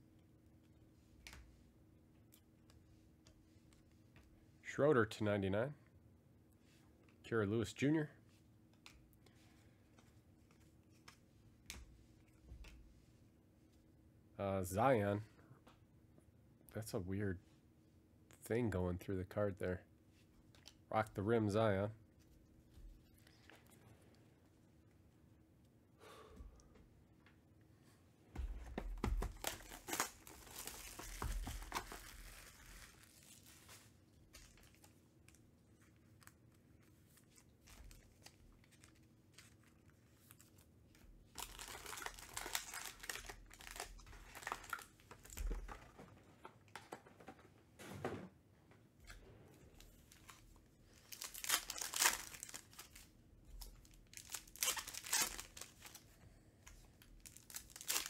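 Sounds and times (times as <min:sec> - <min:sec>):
handling of card packs: 0:28.4 - 0:48.2, 0:49.1 - 0:58.0
wrappers tearing and crinkling: 0:29.2 - 0:35.4, 0:41.3 - 0:45.8, 0:50.0 - 0:56.1, 0:57.0 - 0:58.0.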